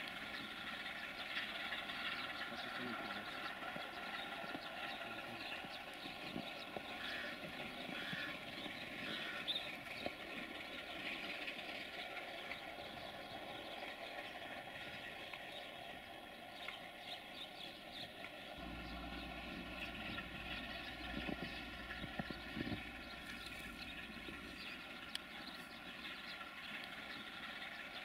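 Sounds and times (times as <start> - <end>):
locomotive diesel engine drone: 18.6 - 28.0
low hum: 18.6 - 28.0.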